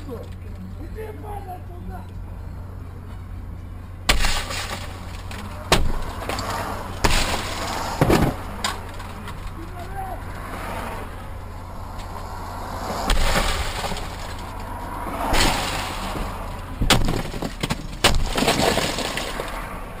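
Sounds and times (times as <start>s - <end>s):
glass breaking: 4.1s - 9.5s, 13.1s - 14.6s, 15.3s - 19.6s.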